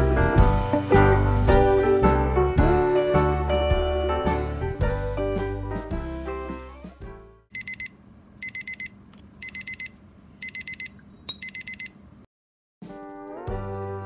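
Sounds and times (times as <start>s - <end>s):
kitchen timer beeping: 7.5s - 12.0s.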